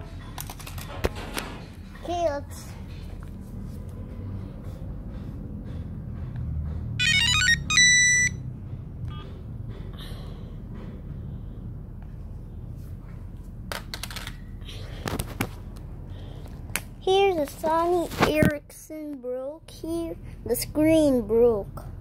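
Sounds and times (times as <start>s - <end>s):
phone electronic tune: 7.0s - 8.4s.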